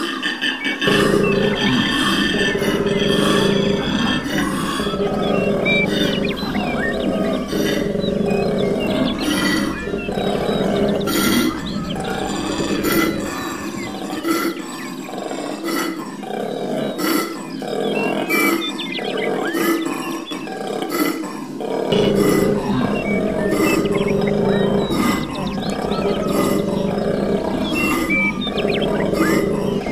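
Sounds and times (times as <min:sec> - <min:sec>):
koala bellowing deep grunts: 0:00.8 - 0:29.9.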